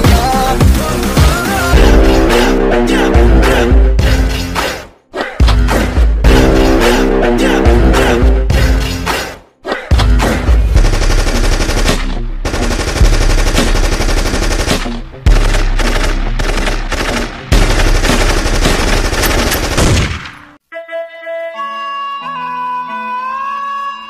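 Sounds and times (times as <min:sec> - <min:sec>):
recorded machine-gun fire: 0:10.8 - 0:20.4.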